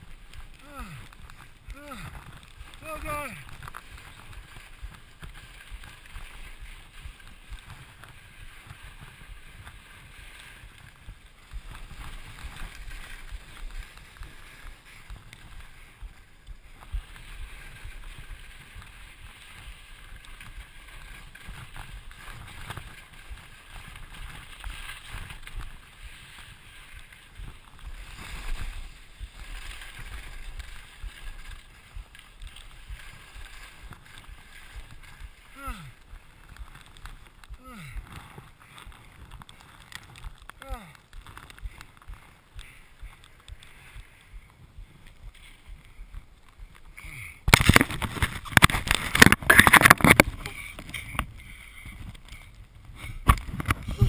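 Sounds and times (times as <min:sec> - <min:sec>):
skis hissing through snow: 0:00.0 - 0:41.0, 0:41.6 - 0:46.0
wind rumbling on microphone: 0:00.0 - 0:54.0.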